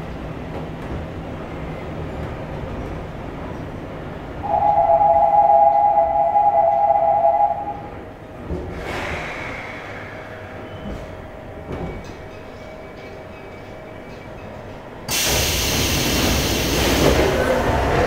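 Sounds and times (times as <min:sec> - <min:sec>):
train running noise: 0:00.0 - 0:18.0
two-tone train horn: 0:04.4 - 0:07.9.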